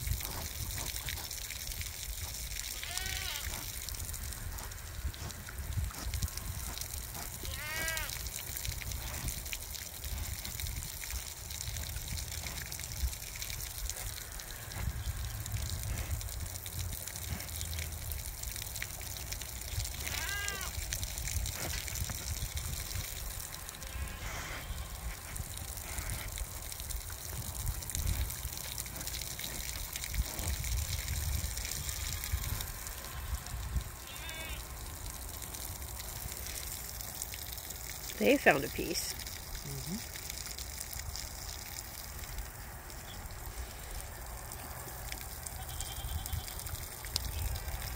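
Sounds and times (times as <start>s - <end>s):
wind rumbling on microphone: 0.0s - 2.4s, 3.6s - 7.5s, 8.5s - 16.9s, 20.7s - 28.6s, 29.6s - 34.1s, 46.0s - 47.9s.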